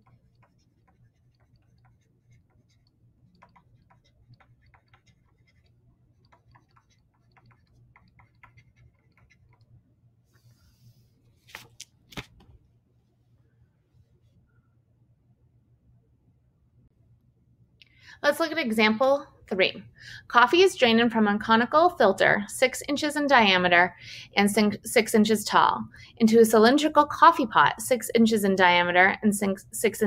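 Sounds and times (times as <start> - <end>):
pen tip tapping on tablet: 0.0 - 9.7
low steady hum: 0.0 - 30.0.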